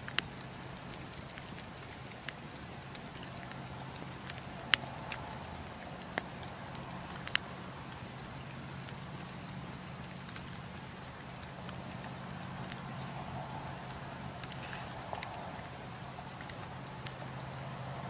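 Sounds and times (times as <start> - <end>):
campfire crackling: 0.0 - 18.0.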